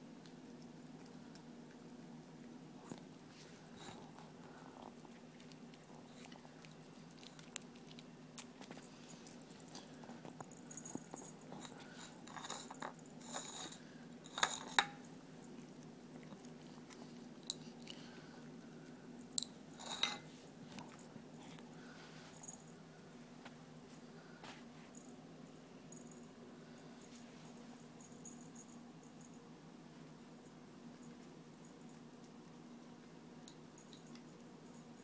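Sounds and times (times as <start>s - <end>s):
puppy crunching dry kibble: 0.3s - 14.7s.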